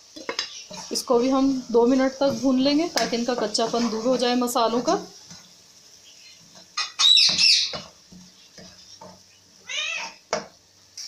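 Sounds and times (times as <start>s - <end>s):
faint sizzle: 0.0s - 11.0s
ladle scraping an iron pan: 2.2s - 4.4s.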